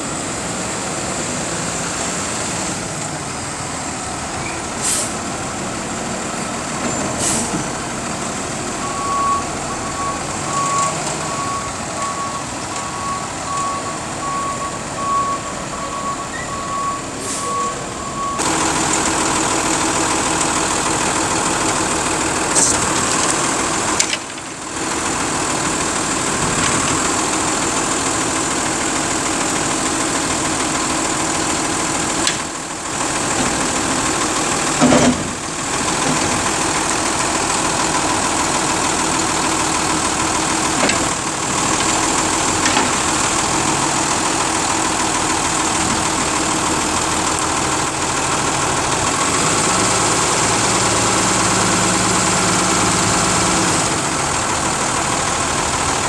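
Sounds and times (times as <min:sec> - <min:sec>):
garbage truck engine idling: 0:00.0 - 0:56.0.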